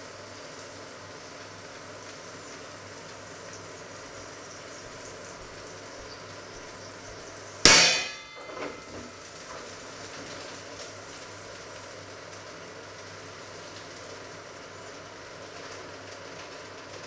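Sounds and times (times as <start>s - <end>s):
metal pot clanging: 7.7s - 9.0s.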